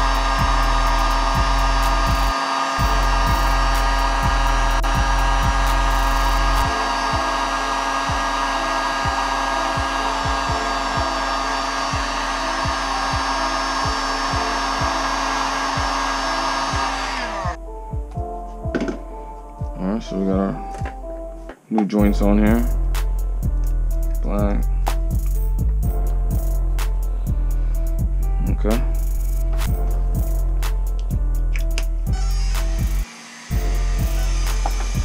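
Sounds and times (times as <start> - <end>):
heat gun running: 0.0 - 17.6, 32.1 - 35.0.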